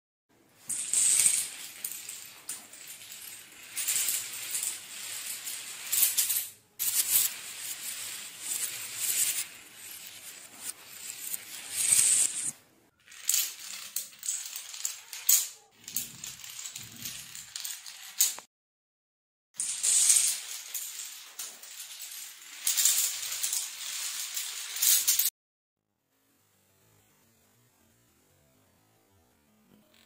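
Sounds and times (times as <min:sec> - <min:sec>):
dominoes toppling: 0:00.7 - 0:12.5, 0:13.1 - 0:18.5, 0:19.6 - 0:25.3.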